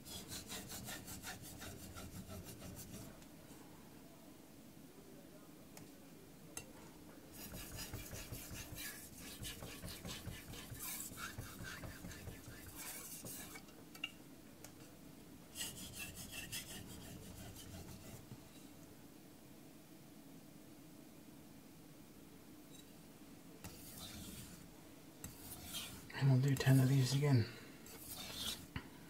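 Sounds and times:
knife scraping on whetstone: 0.1s - 3.1s, 7.4s - 13.7s, 15.6s - 18.2s, 23.6s - 24.6s, 25.2s - 27.2s, 27.9s - 28.7s.

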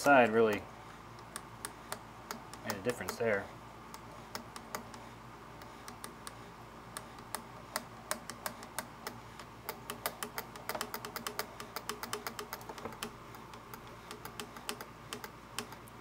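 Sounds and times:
sewing machine metal clicks: 7.0s - 15.9s.

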